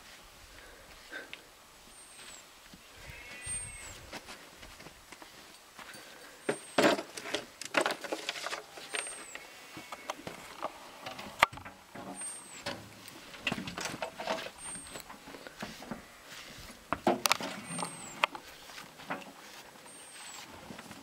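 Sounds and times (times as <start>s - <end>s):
brush swishing on coat: 14.9s - 16.8s, 18.4s - 20.7s.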